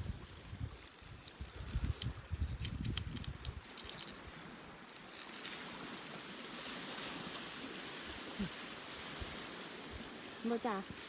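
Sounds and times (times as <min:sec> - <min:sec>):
waves on shingle beach: 0:03.6 - 0:11.0.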